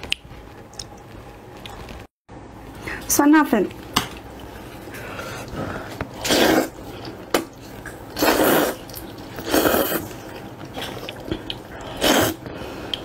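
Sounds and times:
person slurping noodles: 0:05.4 - 0:07.2, 0:08.1 - 0:12.9.

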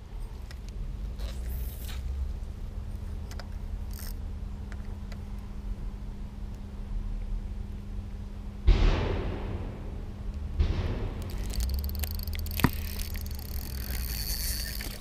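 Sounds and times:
faint steady hum: 0:00.0 - 0:15.0
reel clicks: 0:03.3 - 0:05.2, 0:11.2 - 0:15.0.

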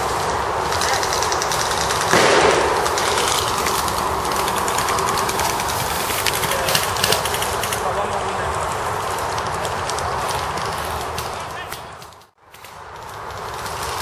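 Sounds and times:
airsoft guns firing: 0:00.8 - 0:05.1
loud thump: 0:02.1 - 0:03.0.

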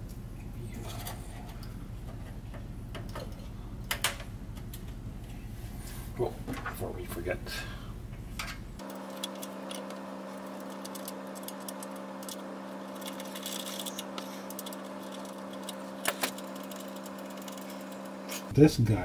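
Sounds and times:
steady hum: 0:00.0 - 0:19.0
cables and connectors rattling: 0:08.4 - 0:18.5.

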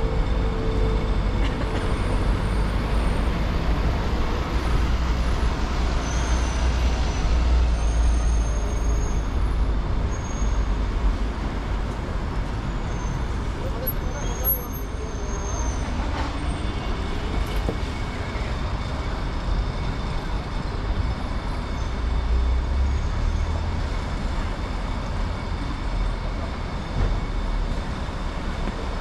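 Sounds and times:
traffic rumble: 0:00.0 - 0:29.0
voices of people nearby: 0:13.5 - 0:17.3.

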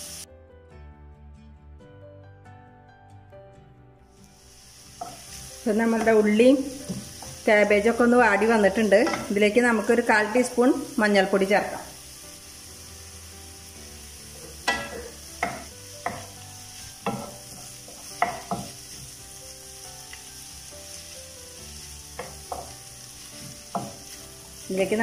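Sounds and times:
vegetables sizzling in oil: 0:00.0 - 0:00.3, 0:04.1 - 0:25.0
wooden spatula knocking on pan: 0:06.8 - 0:07.4, 0:09.0 - 0:09.3, 0:14.5 - 0:16.4, 0:17.0 - 0:18.9, 0:22.1 - 0:22.8, 0:23.4 - 0:24.1.

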